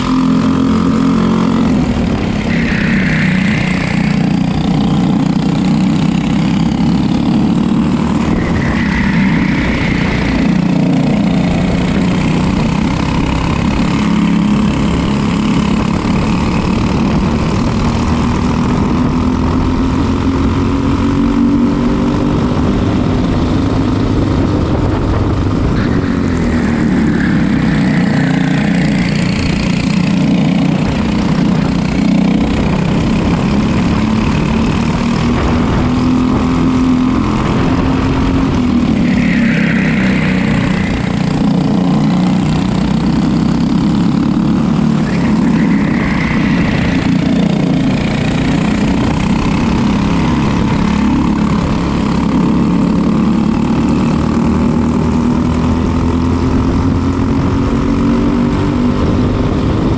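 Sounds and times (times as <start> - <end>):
racing kart engine: 0.0 - 59.9.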